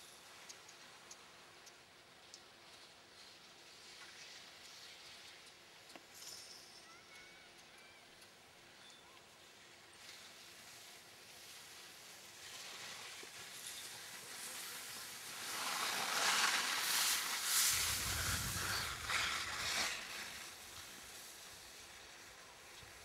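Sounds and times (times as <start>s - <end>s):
skis sliding over snow: 0.9s - 6.5s, 8.3s - 23.0s.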